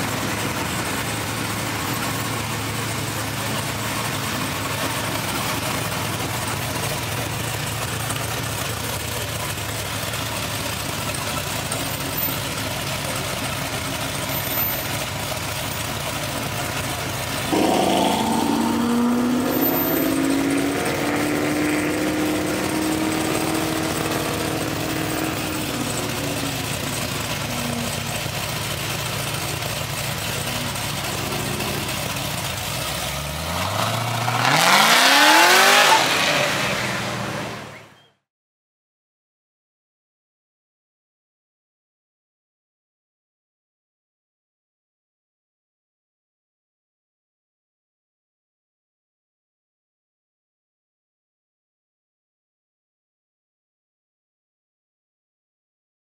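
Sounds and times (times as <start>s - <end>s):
car engine running and revving: 0.0s - 37.9s.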